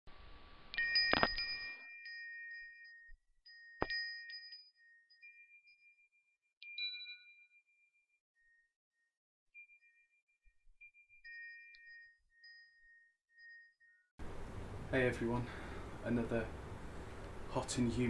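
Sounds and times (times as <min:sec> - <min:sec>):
bell-like chime tones: 0:00.7 - 0:14.2.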